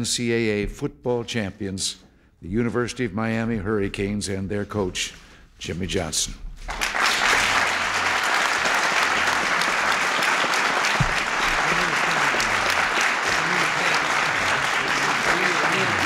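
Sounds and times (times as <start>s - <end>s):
audience applause: 6.7s - 16.0s.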